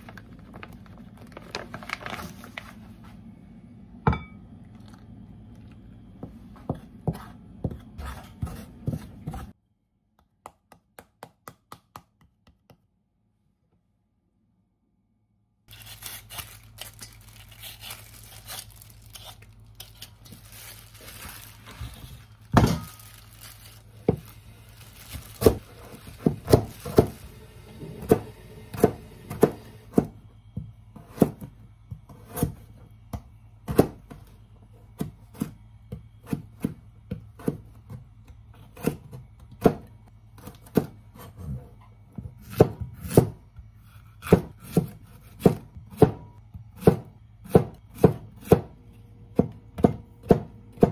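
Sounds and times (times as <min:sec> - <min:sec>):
knife chopping on plastic board: 0:25.1 - 0:27.2, 0:28.0 - 0:34.2, 0:34.9 - 0:41.6, 0:42.2 - 0:43.4, 0:44.1 - 0:50.9.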